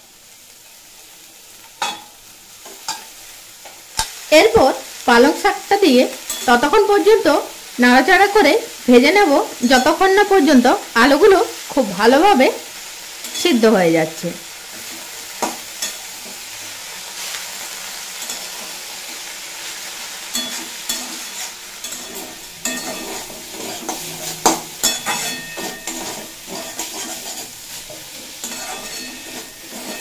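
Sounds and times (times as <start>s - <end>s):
vegetables sizzling in oil: 0.0s - 30.0s
metal spatula scraping a pan: 0.6s - 4.2s, 6.2s - 6.8s, 14.7s - 30.0s.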